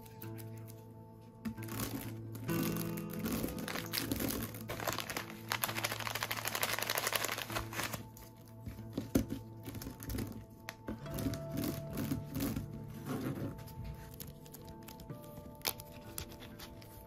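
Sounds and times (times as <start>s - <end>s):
crinkling rustle of materials: 0.0s - 17.0s
gentle background music: 0.0s - 17.0s.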